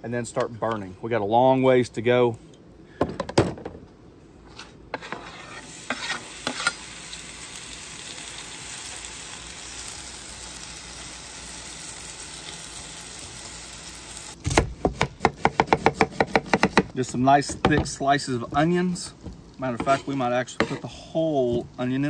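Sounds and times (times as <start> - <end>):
metal spatula scraping griddle: 4.5 - 6.9, 19.7 - 21.0
potatoes sizzling in hot oil: 5.6 - 14.4, 17.2 - 22.0.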